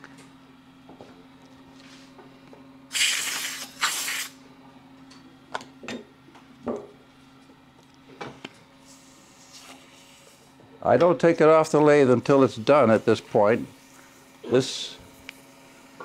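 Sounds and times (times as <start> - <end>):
compressed air blasts: 2.9 - 4.4.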